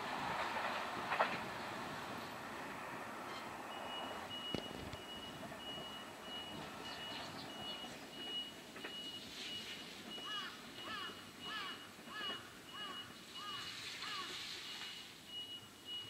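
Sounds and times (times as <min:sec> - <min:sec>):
distant rail and street noise: 0:00.0 - 0:16.0
high electronic warning beep: 0:03.7 - 0:12.0, 0:12.7 - 0:13.7, 0:14.6 - 0:16.0.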